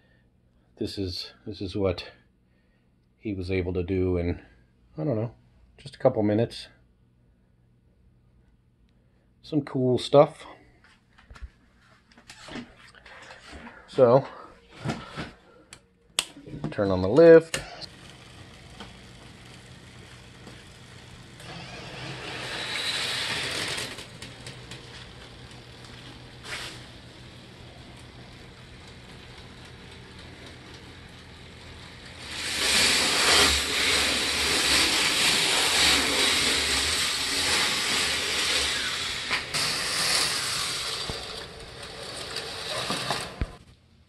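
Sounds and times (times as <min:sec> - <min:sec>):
lift motor humming: 0:17.5 - 0:43.6
roller coaster wheels rushing on track: 0:17.9 - 0:43.6.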